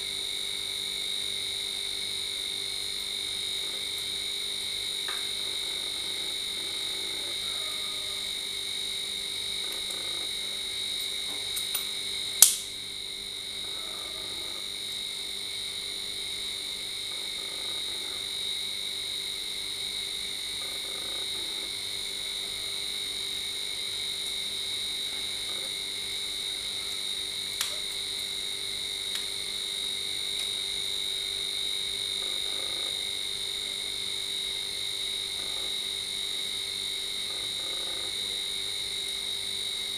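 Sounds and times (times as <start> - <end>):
chorus of calling frogs: 5.1 - 8.7, 9.4 - 10.8, 13.5 - 14.9, 16.2 - 18.6, 20.4 - 23.0, 24.6 - 27.9, 31.9 - 33.2, 35.2 - 35.9, 37.0 - 38.8.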